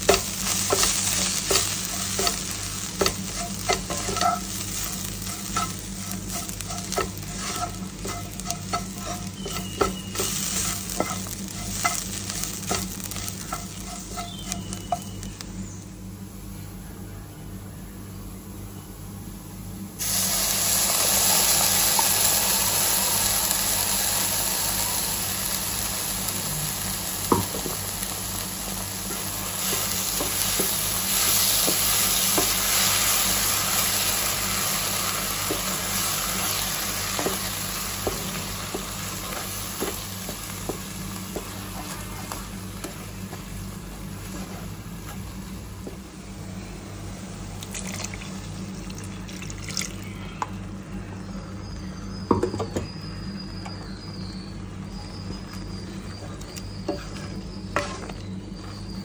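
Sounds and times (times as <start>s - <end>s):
spoon scraping and tapping pan: 0.0s - 15.2s
puree sizzling in a pan: 0.0s - 15.8s, 20.0s - 46.0s, 54.0s - 59.0s.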